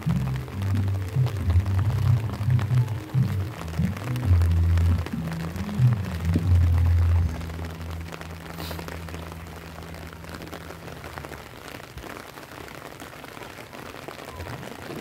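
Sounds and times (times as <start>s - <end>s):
rain pattering on wet road: 0.0s - 15.0s.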